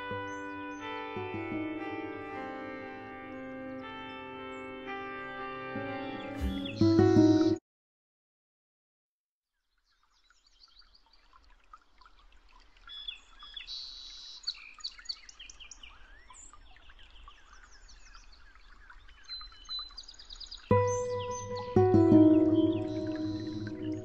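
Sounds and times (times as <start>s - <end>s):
small birds chirping: 6.1s - 7.6s, 9.6s - 24.0s.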